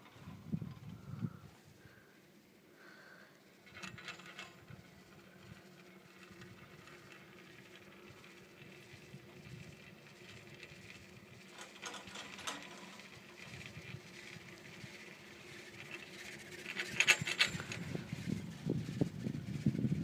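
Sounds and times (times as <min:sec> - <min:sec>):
chairlift humming: 0:00.0 - 0:20.0
clicking and rattling: 0:03.6 - 0:18.4.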